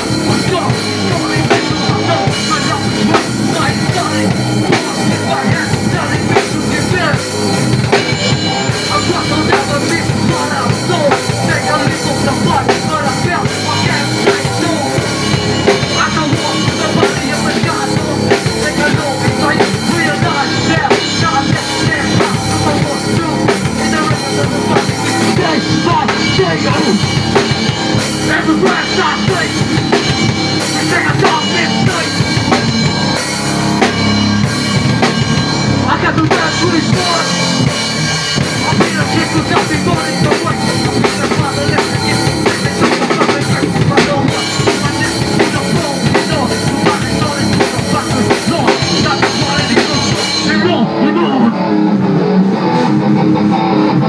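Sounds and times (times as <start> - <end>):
drum kit: 0.0 - 54.0
electric guitar: 0.0 - 54.0.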